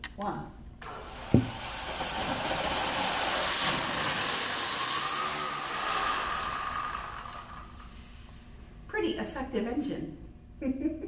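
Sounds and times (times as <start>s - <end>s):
gas jetting with rushing hiss: 0.8s - 8.6s.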